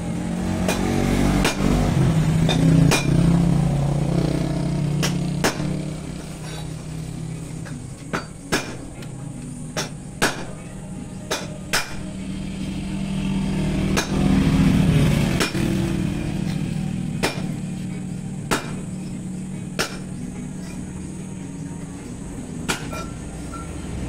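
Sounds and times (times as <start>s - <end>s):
motorcycle engine idling: 0.0s - 24.0s
sharp hammer-like knocks: 0.6s - 3.3s, 5.0s - 5.9s, 8.1s - 8.9s, 9.8s - 10.6s, 11.3s - 12.0s, 13.9s - 14.4s, 15.4s - 15.8s, 17.2s - 17.6s, 18.5s - 18.9s, 19.8s - 20.2s.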